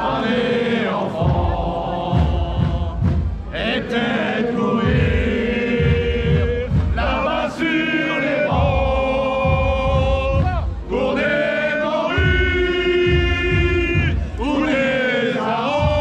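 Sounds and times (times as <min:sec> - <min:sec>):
crowd singing a chant: 0:00.0 - 0:16.0
low repeated beat: 0:00.0 - 0:16.0.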